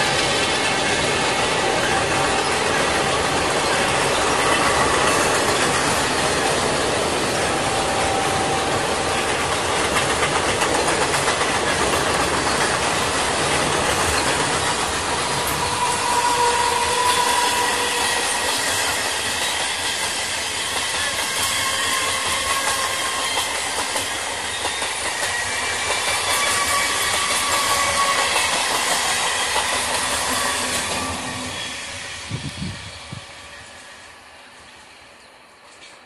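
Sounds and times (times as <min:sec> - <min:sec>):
train rumbling past: 0:00.0 - 0:36.0
wheels clattering over rail joints: 0:09.1 - 0:15.9
thin wheel squeal: 0:15.5 - 0:31.8.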